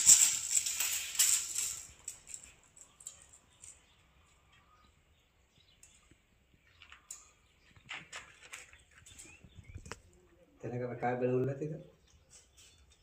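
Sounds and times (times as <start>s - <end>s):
tape measure rattling out: 0.0s - 3.8s.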